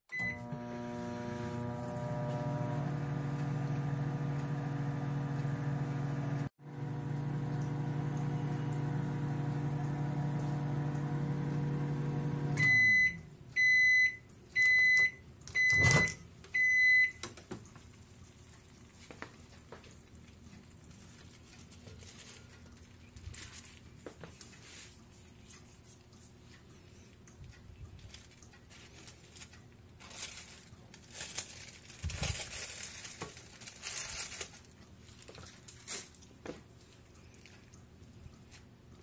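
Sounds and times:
microwave oven humming: 0.1 - 18.9.

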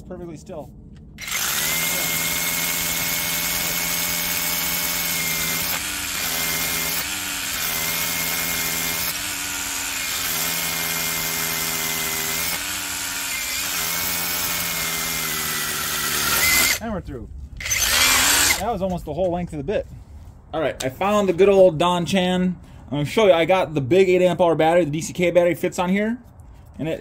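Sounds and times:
rotary hammer drilling into stone: 1.2 - 16.8, 17.6 - 18.7.

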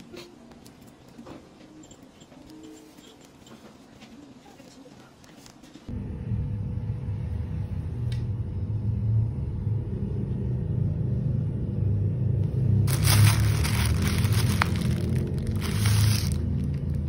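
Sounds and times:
steady low rumble: 5.9 - 17.0
plastic packaging crinkling: 12.9 - 17.0.

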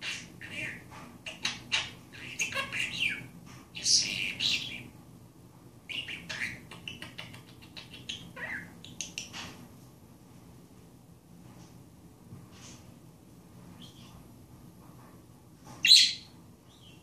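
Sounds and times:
budgerigar warbling and chattering: 5.9 - 9.3.

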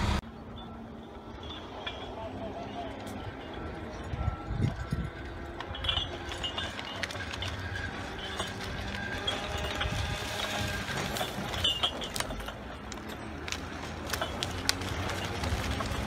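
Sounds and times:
carriage travelling along cable: 0.0 - 16.0
distant engine running: 0.0 - 16.0.

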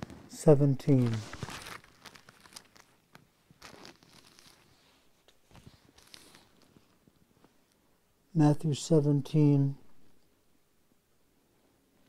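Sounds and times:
thin pages turning: 0.9 - 7.0.

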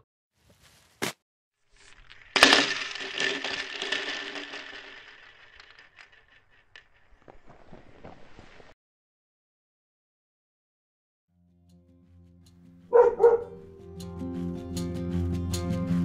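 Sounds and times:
faint crackles: 1.7 - 8.8.

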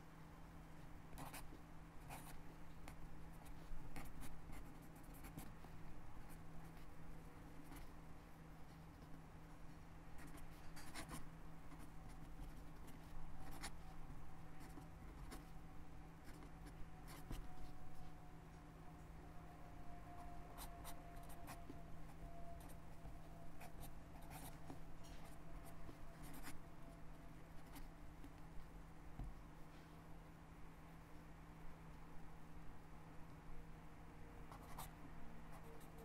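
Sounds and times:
faint steady hum: 0.0 - 36.0
pen scratching on paper: 1.2 - 1.5, 2.1 - 2.4, 3.3 - 5.6, 10.2 - 13.9, 14.6 - 15.5, 16.2 - 17.8, 23.6 - 26.6, 34.5 - 34.9.

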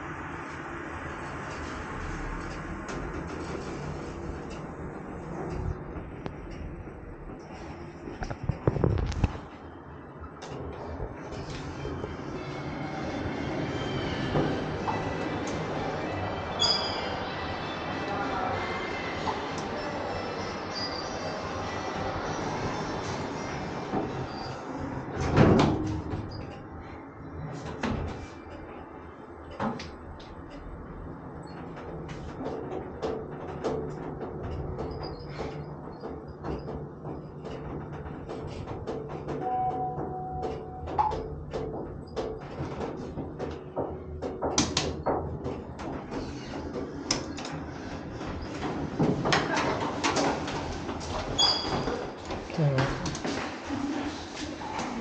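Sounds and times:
elevator doors sliding open: 0.0 - 55.0
lift machinery hum: 0.0 - 55.0
sharp clicks and knocks: 31.4 - 51.1
elevator clunk: 31.4 - 52.5.

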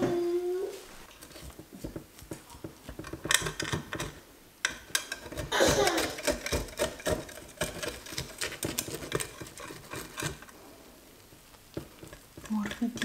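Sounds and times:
knife cutting crust in glass dish: 5.0 - 10.4.

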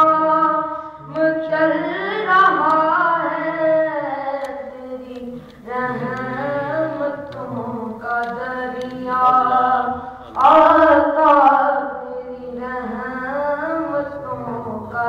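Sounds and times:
person singing devotional song: 0.0 - 15.0.

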